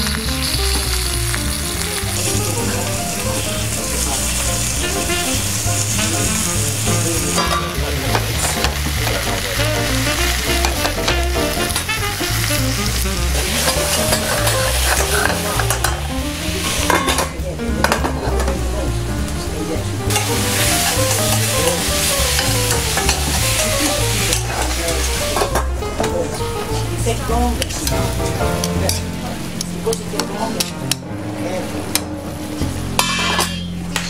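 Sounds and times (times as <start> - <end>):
spinach sizzling in oil: 0.0 - 17.5, 19.6 - 31.0
background music with melody: 0.0 - 34.0.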